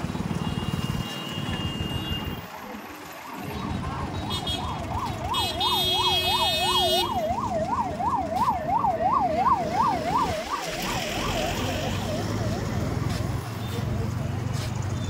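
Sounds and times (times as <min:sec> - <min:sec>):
electronic siren yelping: 0:04.0 - 0:12.8.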